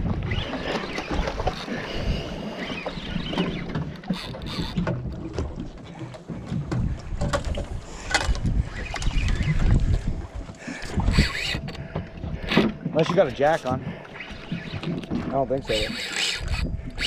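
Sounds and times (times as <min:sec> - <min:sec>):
sea and boat noise: 0:00.0 - 0:17.0
fishing reel cranking: 0:03.4 - 0:04.9, 0:10.8 - 0:11.8, 0:14.6 - 0:17.0
wind on microphone: 0:06.4 - 0:12.7, 0:13.8 - 0:17.0.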